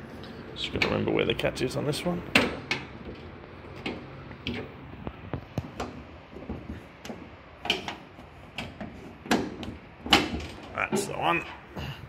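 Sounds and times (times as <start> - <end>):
metal bonnet catch clicking: 7.0 - 11.2.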